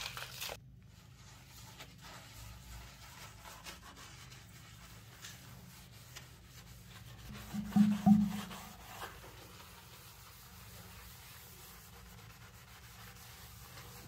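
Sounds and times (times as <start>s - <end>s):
scouring pad scrubbing a sink: 0.8s - 14.0s.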